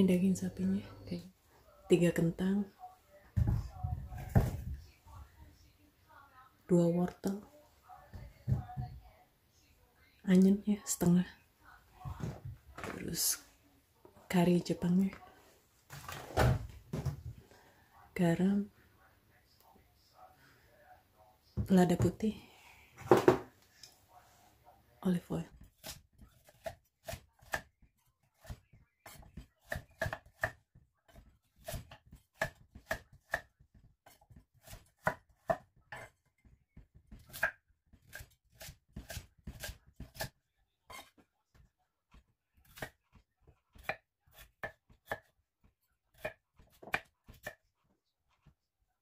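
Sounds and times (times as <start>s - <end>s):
knife chopping on wooden board: 25.6s - 27.7s, 28.3s - 36.1s, 36.9s - 40.3s, 42.6s - 43.2s, 43.8s - 45.3s, 46.1s - 47.6s.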